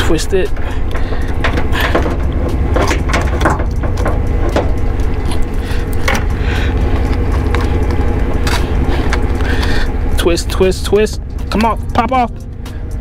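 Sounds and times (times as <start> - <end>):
wind rumble on microphone: 0.0 - 13.0.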